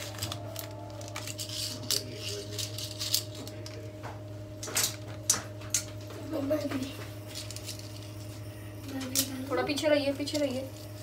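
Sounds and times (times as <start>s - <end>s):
plastic packet crackling: 0.0s - 3.5s
low hum: 0.0s - 11.0s.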